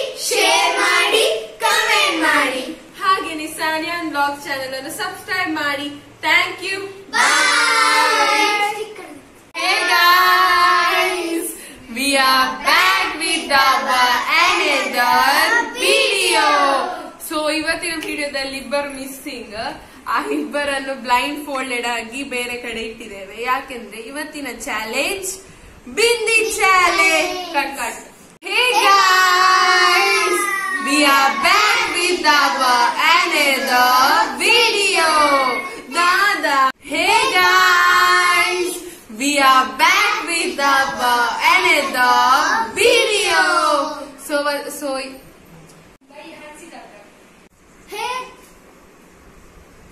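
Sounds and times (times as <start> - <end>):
children and woman singing: 9.6 - 11.4, 39.9 - 43.8
woman and children singing: 9.6 - 16.8, 39.3 - 43.8.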